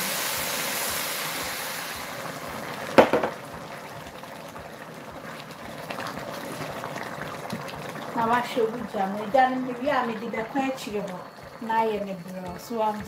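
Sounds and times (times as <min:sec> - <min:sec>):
hot water hissing in pot: 0:00.0 - 0:13.0
liquid bubbling: 0:00.4 - 0:13.0
sharp knocks: 0:03.0 - 0:03.4.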